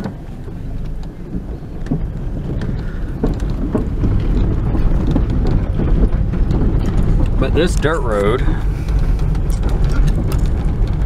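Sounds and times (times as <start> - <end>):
gravel clicking under tyres: 0.0 - 11.0
tyres and engine rumble: 0.0 - 11.0.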